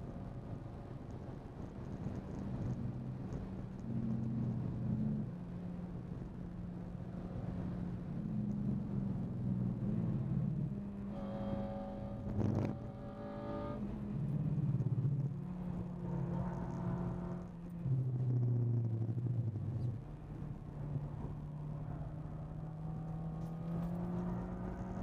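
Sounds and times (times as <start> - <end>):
car engine revving under load: 9.7 - 20.5.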